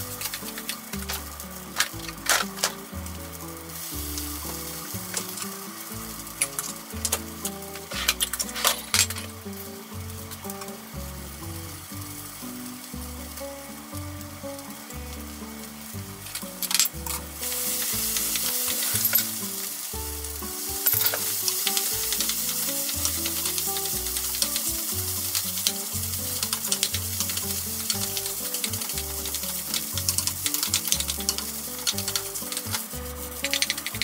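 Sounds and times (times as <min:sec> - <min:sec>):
background music with low bass: 0:00.0 - 0:34.0
rice sizzling in a frying pan: 0:00.0 - 0:34.0
spatula scraping and tapping pan: 0:04.1 - 0:05.6, 0:06.3 - 0:09.4, 0:20.7 - 0:34.0.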